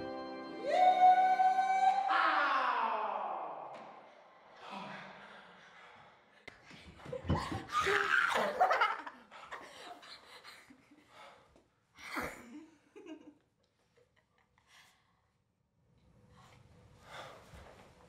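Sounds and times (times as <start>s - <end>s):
woman and man laughing: 8.4s - 11.0s.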